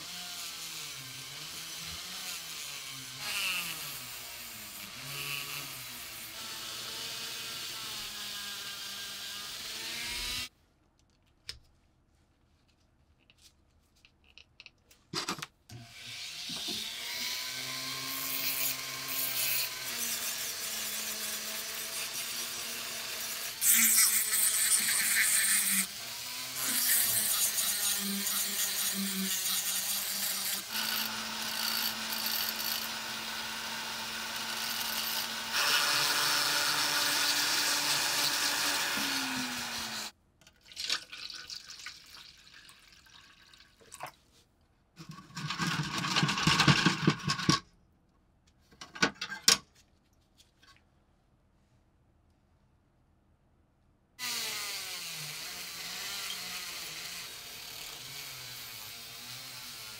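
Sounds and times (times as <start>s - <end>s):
rotary tool grinding metal: 0.0s - 10.5s, 16.2s - 40.1s, 54.2s - 59.9s
liquid poured into plastic tub: 40.5s - 44.3s.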